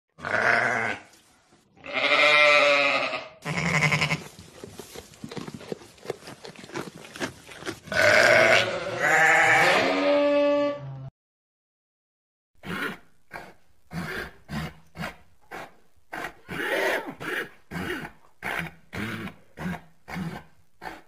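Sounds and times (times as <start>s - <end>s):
sheep bleating: 0.2s - 1.1s, 1.8s - 4.3s, 7.8s - 10.9s.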